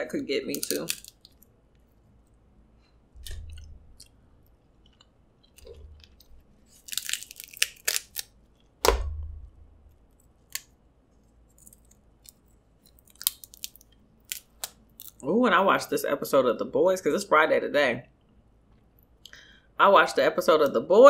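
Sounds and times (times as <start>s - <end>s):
crab shells cracking: 0.4s - 1.5s, 3.2s - 9.0s, 9.8s - 15.2s
wet chewing: 3.0s - 8.8s.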